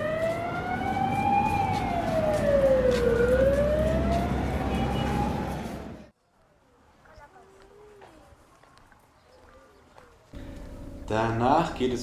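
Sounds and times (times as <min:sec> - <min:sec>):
siren wailing: 0:00.0 - 0:06.0.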